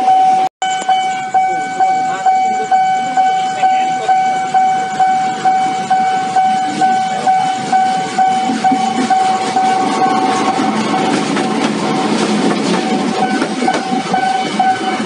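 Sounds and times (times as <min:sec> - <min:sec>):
level crossing bell ringing: 0:00.0 - 0:10.5
approaching train rumble: 0:00.0 - 0:15.0.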